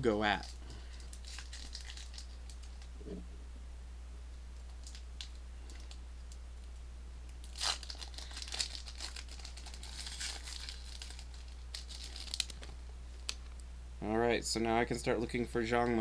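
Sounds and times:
steady low hum: 0.0 - 16.0
wrapper crinkling and tearing: 0.3 - 2.9, 7.4 - 13.4.

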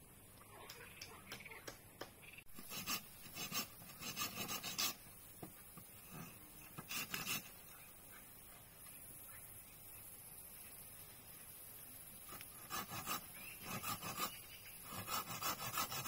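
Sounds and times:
hand tool rasping on wood: 2.6 - 5.0, 6.1 - 7.5, 12.3 - 16.0.

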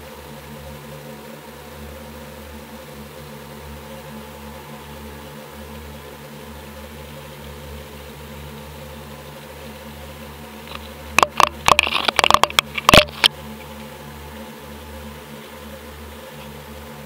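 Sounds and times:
steady low hum: 0.0 - 17.0
camera housing knocking on rocks: 10.7 - 13.4.

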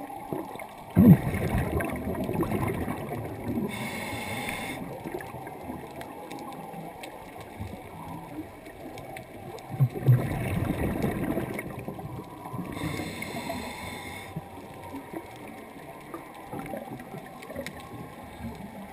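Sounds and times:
exhaled bubbles rushing: 0.0 - 4.0, 4.8 - 13.0
low underwater rush: 0.0 - 18.9
hissing inhale through regulator: 3.6 - 5.0, 12.7 - 14.5.

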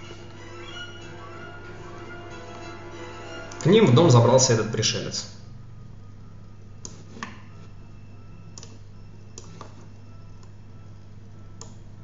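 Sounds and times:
steady low hum: 0.0 - 12.0
keyboard or mouse clicks: 11.6 - 11.8.

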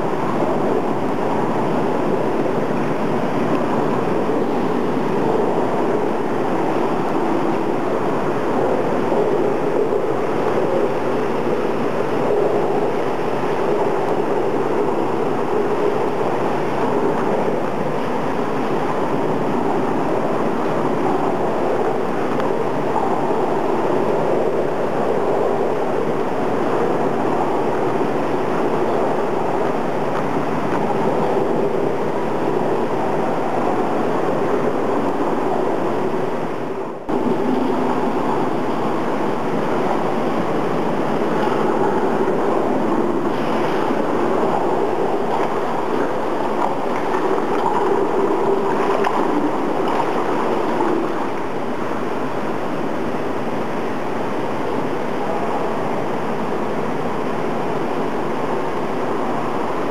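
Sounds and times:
water rushing in indoor pool: 0.0 - 59.9.

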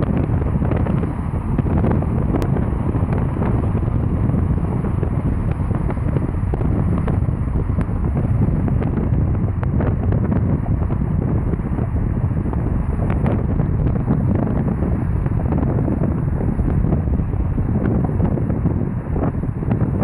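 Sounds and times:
road rumble: 0.0 - 20.0
wind buffeting microphone: 0.0 - 20.0.

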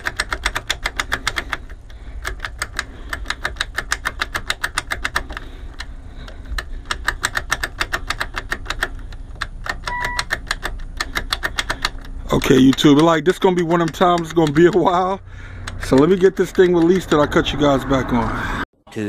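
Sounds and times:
rapid electrical clicking: 0.0 - 17.4
short beep: 9.9 - 10.2.

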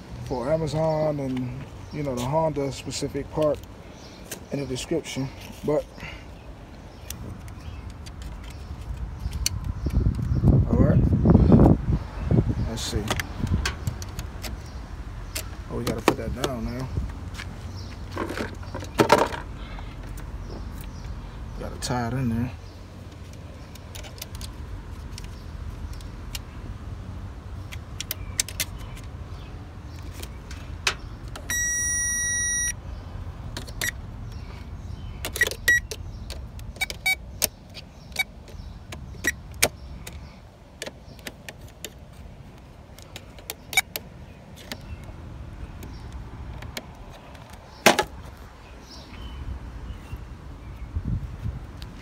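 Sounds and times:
electronic beep: 31.5 - 32.8.

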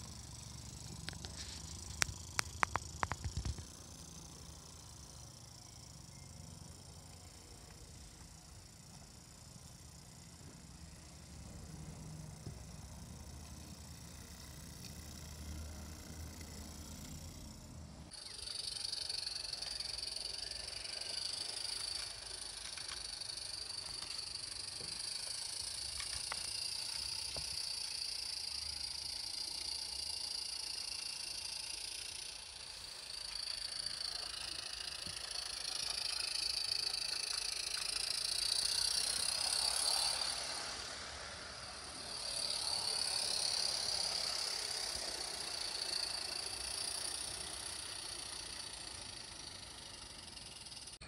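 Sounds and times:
model train wheels hissing on rails: 0.0 - 51.0
steam locomotive hissing: 32.9 - 50.6.

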